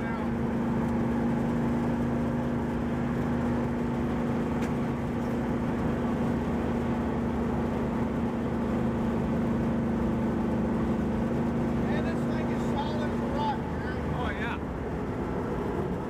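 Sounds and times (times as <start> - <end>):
engine and exhaust drone: 0.0 - 16.0
road noise: 0.0 - 16.0.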